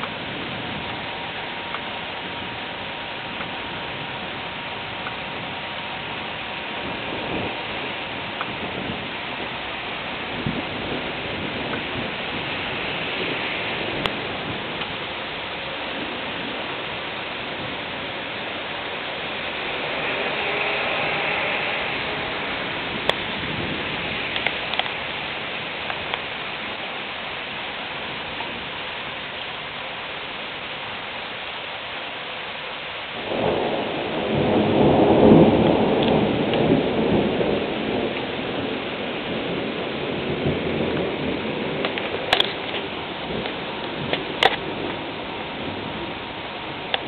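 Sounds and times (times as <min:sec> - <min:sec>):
raindrop ticks: 0:00.0 - 0:00.2, 0:01.6 - 0:01.9, 0:03.3 - 0:03.8, 0:04.9 - 0:05.3, 0:08.3 - 0:09.6, 0:10.4 - 0:15.8, 0:23.0 - 0:23.4, 0:24.2 - 0:26.7, 0:34.3 - 0:38.3, 0:40.4 - 0:45.2, 0:46.8 - 0:47.0
thunderclap rolling rumble: 0:00.0 - 0:29.4, 0:33.2 - 0:47.0
rain falling: 0:00.0 - 0:47.0.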